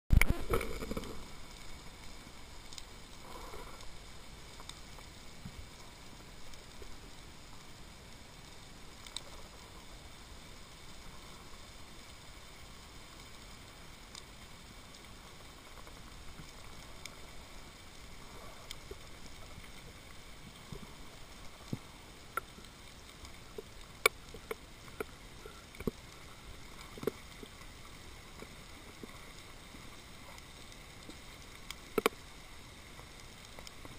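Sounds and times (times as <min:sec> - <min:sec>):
muffled underwater hiss: 0:00.1 - 0:33.9
sharp underwater clicks: 0:20.5 - 0:26.0, 0:30.3 - 0:32.3.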